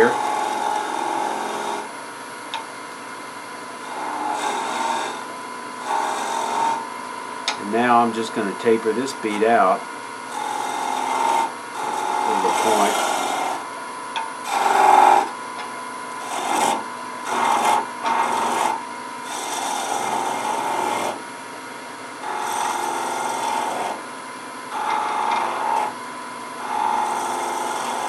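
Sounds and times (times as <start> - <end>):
chisel scraping spinning wood: 0.0 - 1.9, 3.8 - 6.8, 10.3 - 13.7, 14.4 - 15.4, 16.2 - 21.2, 22.2 - 24.1, 24.7 - 26.0, 26.6 - 28.0
wood lathe humming: 0.0 - 1.9, 3.8 - 21.2, 22.2 - 28.0.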